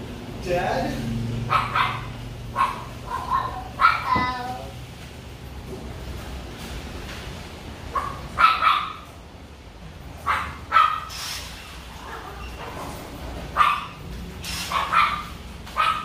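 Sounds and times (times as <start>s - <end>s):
dog barking: 1.5s - 4.5s, 7.9s - 9.1s, 10.2s - 11.1s, 13.5s - 14.0s, 14.7s - 16.0s.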